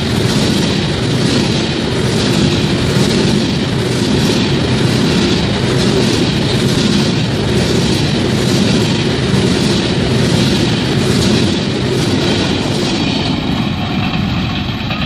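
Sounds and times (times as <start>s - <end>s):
train wheels rolling on rails: 0.0s - 15.0s
wheels clattering over rail joints: 0.0s - 15.0s.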